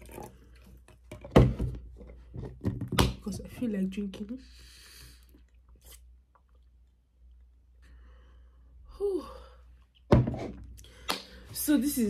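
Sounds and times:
person sighing: 8.9s - 9.7s.

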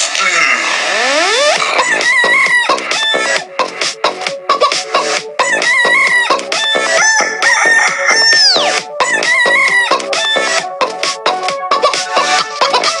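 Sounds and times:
techno dance track: 0.0s - 13.0s
rooster crowing samples: 6.7s - 9.9s.

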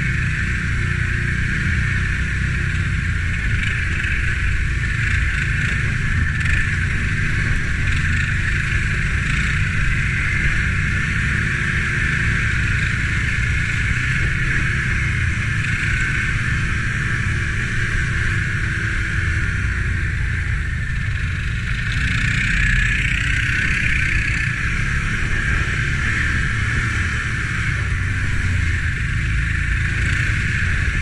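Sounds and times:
quad engine running: 0.0s - 31.0s.

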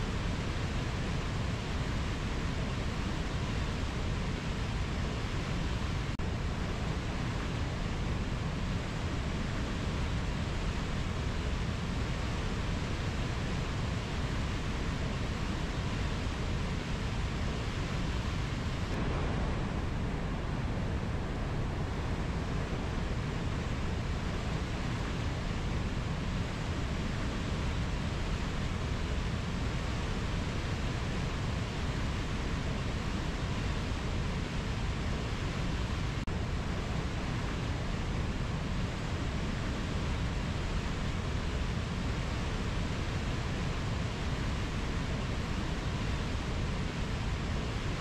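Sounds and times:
river rushing over rapids: 0.0s - 48.0s.

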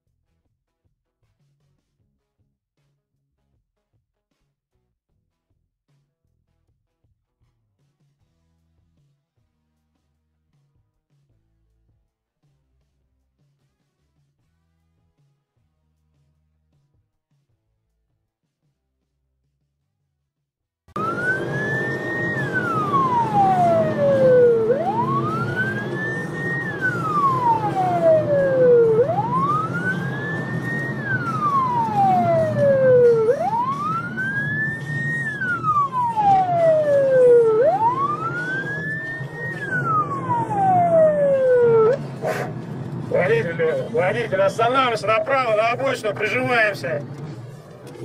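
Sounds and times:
engine and road noise: 20.9s - 48.0s
police car siren: 21.0s - 47.7s.

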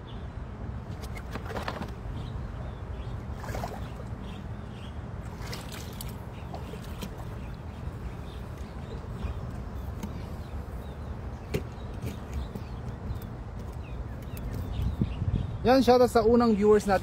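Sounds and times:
water splashing from wading: 3.2s - 4.3s, 5.2s - 9.0s.

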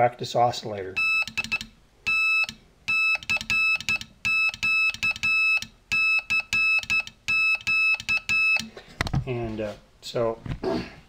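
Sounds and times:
morse code beeping: 1.0s - 8.7s.

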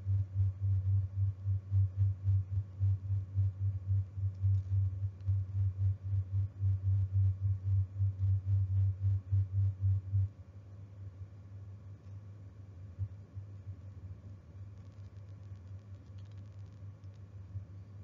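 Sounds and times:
low throbbing hum: 0.0s - 10.4s
faint steady hum: 0.0s - 18.0s.

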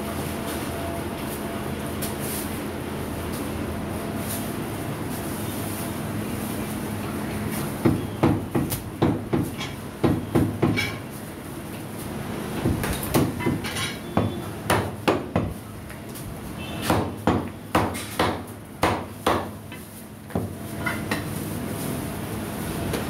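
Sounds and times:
cleaver chopping meat on wood: 7.8s - 10.9s, 14.2s - 15.6s, 16.8s - 19.6s.

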